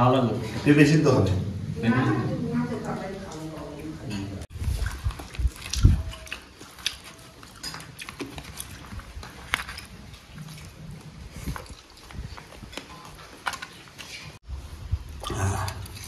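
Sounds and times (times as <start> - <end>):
chewing and biting: 4.6 - 14.4.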